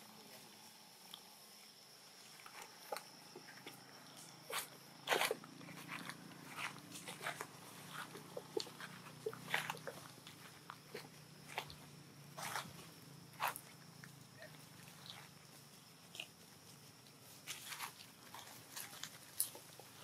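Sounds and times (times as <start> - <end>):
rustling and crunching dry leaves: 2.5 - 13.8, 16.0 - 20.0.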